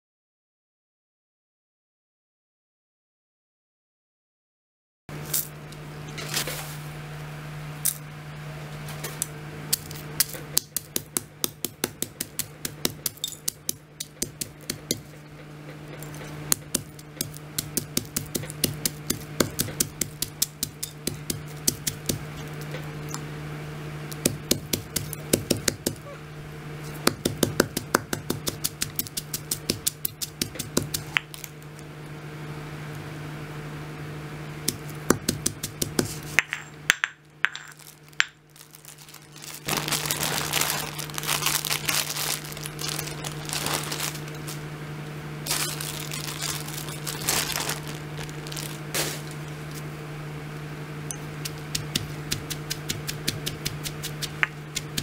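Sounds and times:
steady low hum: 5.1 - 55.0
pestle pounding in stone mortar: 10.2 - 15.1, 16.4 - 22.5, 24.2 - 26.0, 27.0 - 31.3, 34.7 - 37.7, 51.2 - 55.0.

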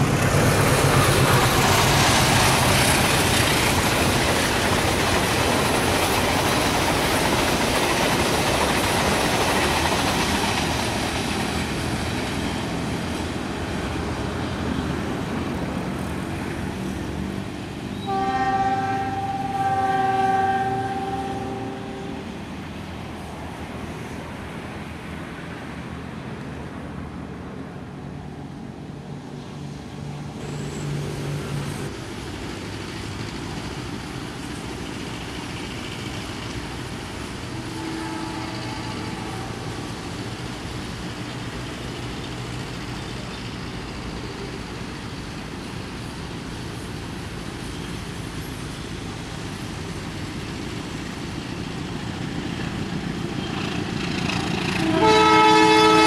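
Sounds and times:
distant road traffic: 0.0 - 56.0
locomotive horn: 18.0 - 22.4, 37.6 - 39.6, 54.7 - 56.0.

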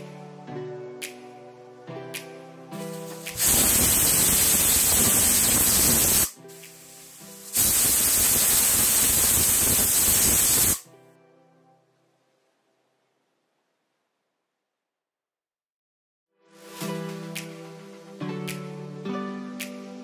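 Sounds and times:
steam hissing: 3.2 - 10.8
pressure cooker whistling: 3.3 - 6.3, 7.6 - 10.8.

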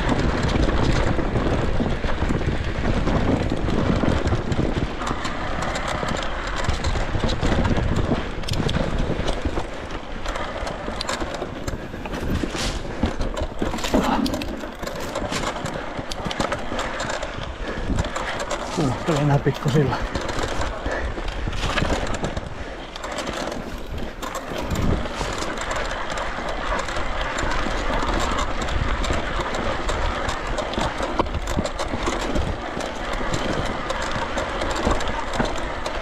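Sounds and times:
bike rattling and clicking: 0.0 - 36.0
tyres and air rushing: 10.6 - 25.5.

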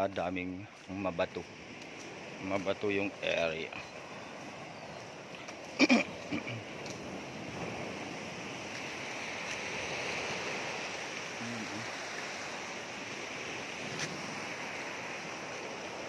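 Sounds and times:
waves washing over rocks: 0.9 - 16.0.

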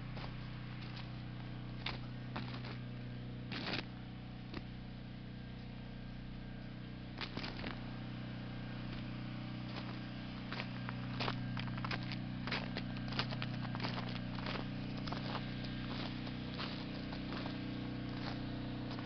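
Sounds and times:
steady low hum: 0.0 - 19.0
footsteps crunching on snow: 0.1 - 2.9, 3.5 - 4.6, 7.2 - 7.9, 8.8 - 19.0.

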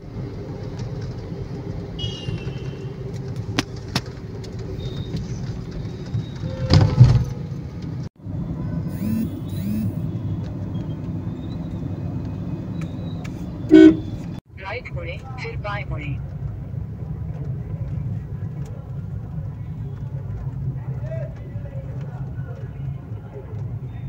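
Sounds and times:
engine and road rumble: 0.0 - 24.0.

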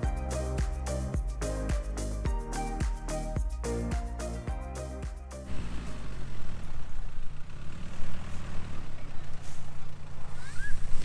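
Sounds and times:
van engine humming: 5.5 - 11.0.

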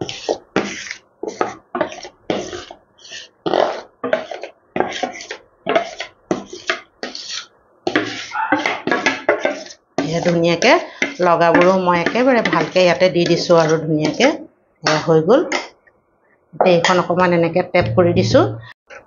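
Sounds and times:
spatula scraping batter from bowl: 0.0 - 15.7.

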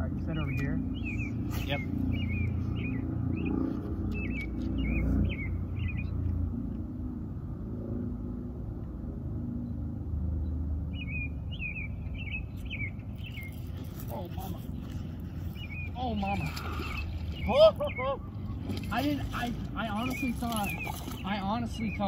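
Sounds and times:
small bird chirping: 0.3 - 6.3, 10.9 - 18.5, 19.4 - 22.0.

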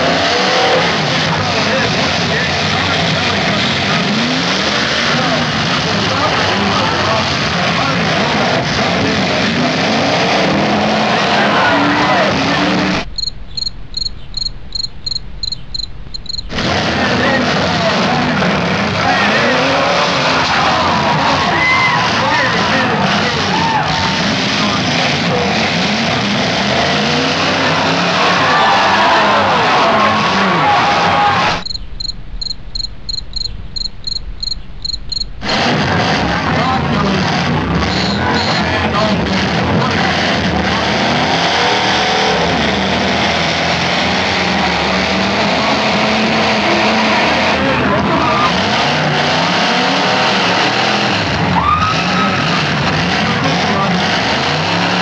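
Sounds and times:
car engines roaring: 0.0 - 55.0
low rumble: 13.0 - 16.4, 31.6 - 35.5
crickets chirping: 13.1 - 16.5, 31.6 - 35.4.

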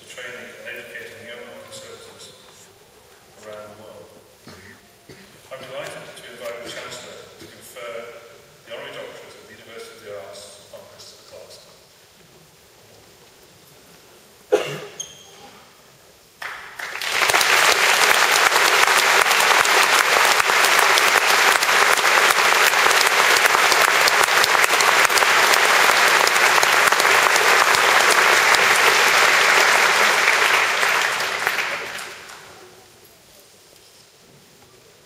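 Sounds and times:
large audience applauding: 16.4 - 32.8.

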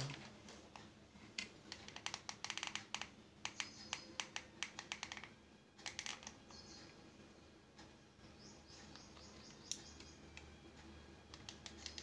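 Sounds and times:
plastic clicks and taps: 0.0 - 6.5.

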